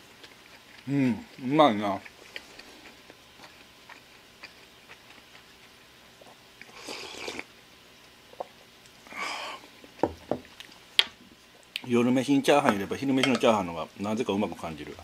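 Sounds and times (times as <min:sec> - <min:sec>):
quiet chewing: 0:00.0 - 0:11.9
slurping soup: 0:06.6 - 0:07.5.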